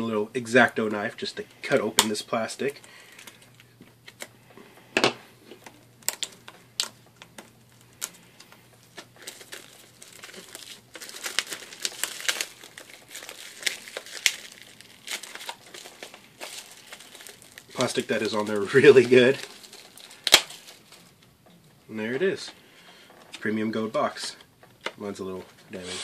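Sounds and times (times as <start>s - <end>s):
plastic wrap crinkling: 0.0s - 4.8s, 5.4s - 26.0s
knife slitting plastic wrap: 9.0s - 20.7s.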